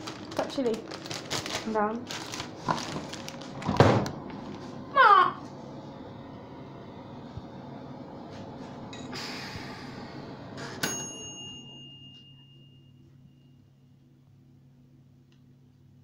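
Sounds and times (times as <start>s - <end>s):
faint room hum: 0.0s - 16.0s
timer bell ding: 10.8s - 13.6s.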